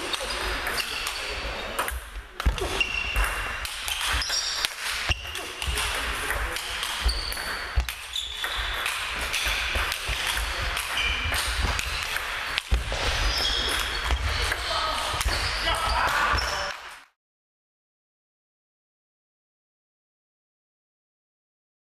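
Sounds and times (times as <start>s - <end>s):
voices chattering: 0.0s - 16.7s.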